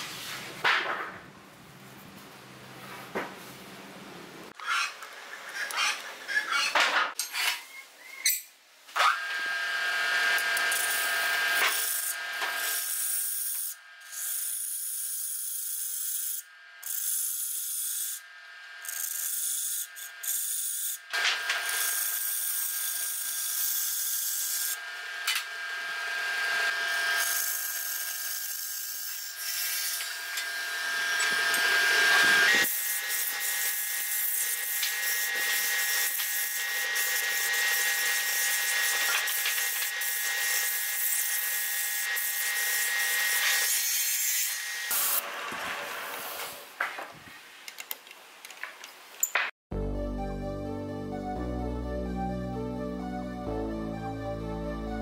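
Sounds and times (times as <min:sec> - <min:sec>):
tool cutting wood hiss: 0:26.5 - 0:46.8.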